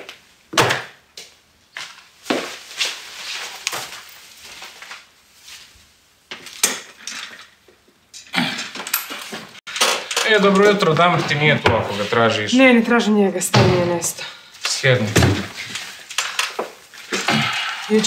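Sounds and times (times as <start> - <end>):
knocks and clacks of handling things: 6.3 - 11.9.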